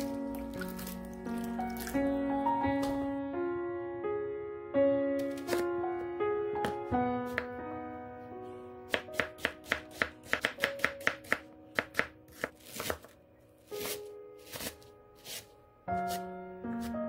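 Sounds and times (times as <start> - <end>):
soft background music: 0.0 - 17.0
knife chopping on wooden board: 8.9 - 13.1.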